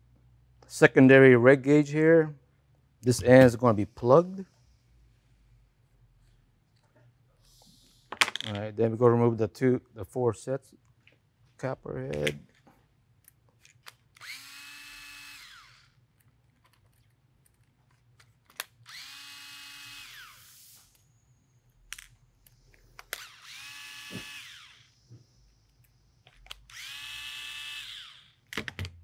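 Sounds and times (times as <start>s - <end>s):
electric screwdriver whining: 14.2s - 16.0s, 18.8s - 20.6s, 23.0s - 25.0s, 26.4s - 28.4s.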